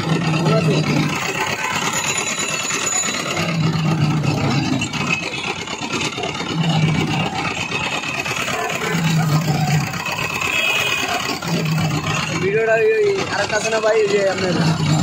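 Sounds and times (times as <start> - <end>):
roller press crushing cane: 0.0 - 15.0.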